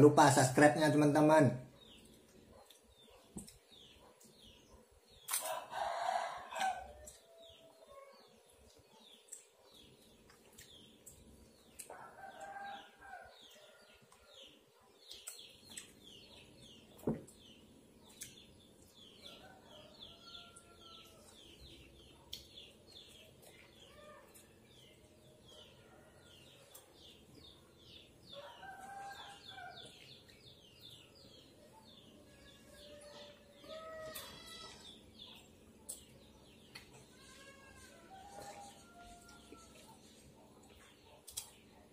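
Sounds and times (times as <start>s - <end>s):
rooster crowing: 5.4s - 7.0s, 37.9s - 39.9s.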